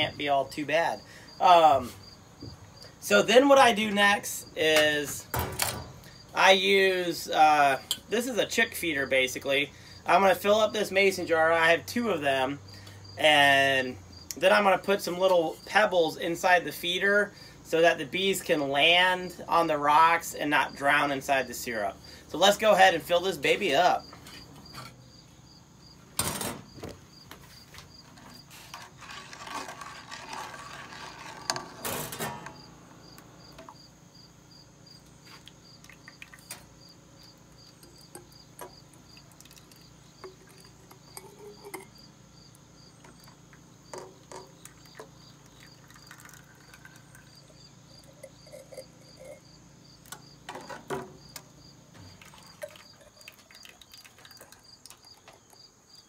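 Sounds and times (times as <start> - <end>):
crickets chirping: 0.0 - 56.0
small knocks: 43.0 - 45.2
syrup pouring into jar: 44.9 - 49.4, 52.2 - 55.3.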